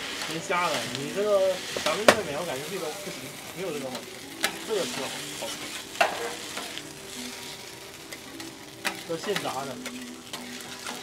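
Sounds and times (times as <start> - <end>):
food sizzling on griddle: 0.0 - 11.0
metal spatula scraping griddle: 0.0 - 11.0
spatula clacking on griddle: 1.7 - 2.4, 3.8 - 11.0.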